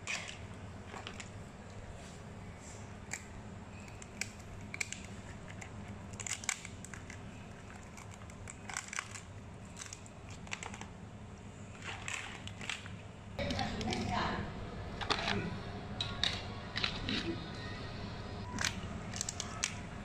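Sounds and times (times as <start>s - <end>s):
steady low hum: 0.0s - 20.0s
crab shells clicking and cracking: 3.0s - 11.0s, 11.8s - 13.0s, 18.4s - 20.0s.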